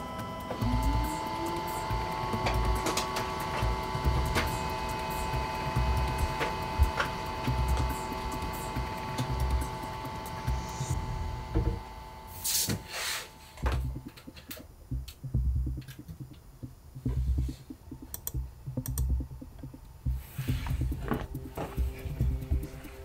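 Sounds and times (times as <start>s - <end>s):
soft low thumps: 13.6s - 22.8s.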